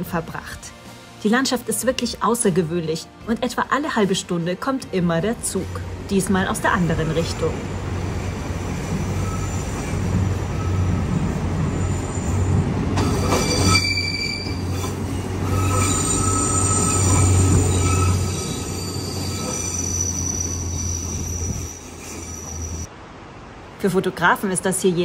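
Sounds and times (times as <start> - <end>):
train running drone: 4.4 - 22.9
train wheels squealing: 8.7 - 22.9.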